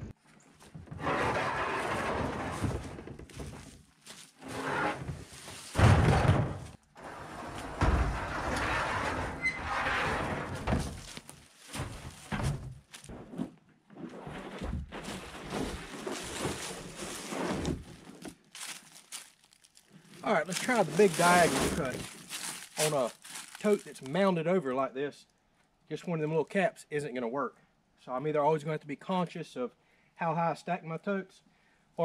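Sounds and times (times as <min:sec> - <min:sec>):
heavy thuds of tank dropping: 0:05.7 - 0:06.8.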